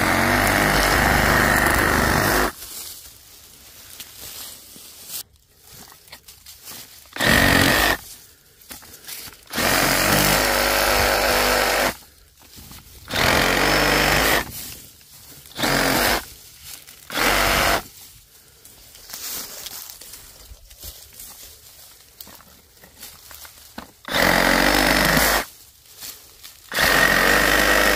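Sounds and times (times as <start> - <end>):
reciprocating saw cutting: 0.0 - 2.6, 7.2 - 8.0, 9.5 - 12.0, 13.1 - 14.5, 15.6 - 16.3, 17.1 - 17.8, 24.1 - 25.5, 26.7 - 27.9
brush rustling: 0.0 - 9.8, 13.9 - 24.2, 25.3 - 27.0.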